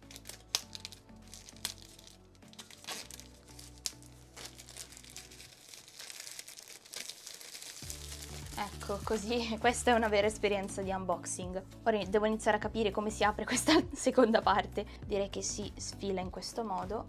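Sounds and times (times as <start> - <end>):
plastic wrap crinkling and tearing: 0.0 - 10.2
background music: 0.0 - 17.0.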